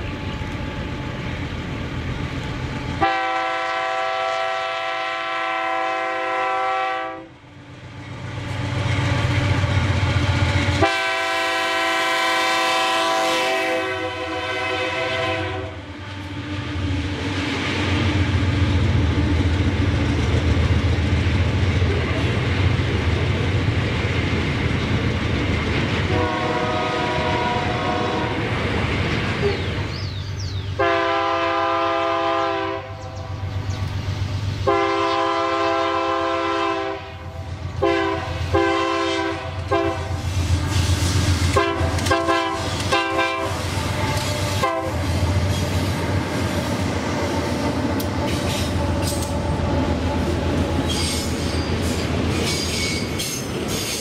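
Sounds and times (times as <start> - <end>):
locomotive engine rumble: 0.0 - 54.0
train rolling past: 0.0 - 54.0
locomotive horn blasts: 3.0 - 7.4, 10.8 - 15.8, 26.1 - 28.5, 30.8 - 33.2, 34.6 - 40.2, 41.5 - 45.1.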